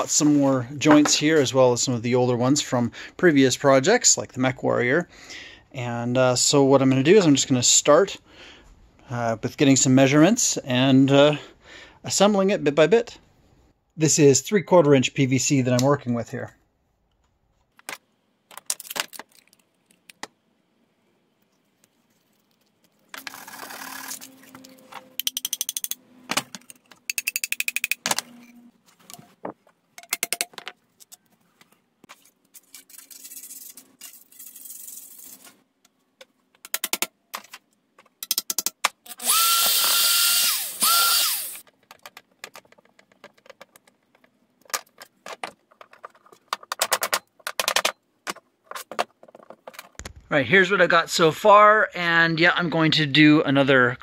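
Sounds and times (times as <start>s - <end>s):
power drill whirring: 23.2s - 24.7s, 39.1s - 41.6s.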